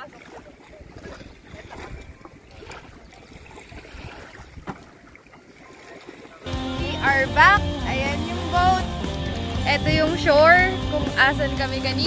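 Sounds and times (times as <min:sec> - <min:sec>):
small waves lapping: 0:00.0 - 0:12.0
wind on microphone: 0:00.7 - 0:05.0, 0:06.8 - 0:12.0.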